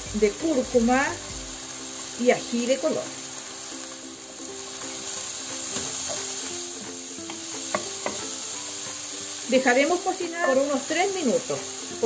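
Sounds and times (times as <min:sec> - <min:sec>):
soft background music: 0:00.0 - 0:12.0
vegetables sizzling in pan: 0:00.0 - 0:12.0
spoon tapping pan: 0:04.7 - 0:06.5, 0:07.2 - 0:09.4.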